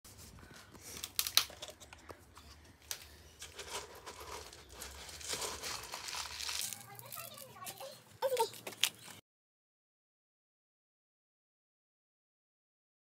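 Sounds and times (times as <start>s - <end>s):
rustling and crinkling: 0.1s - 9.2s.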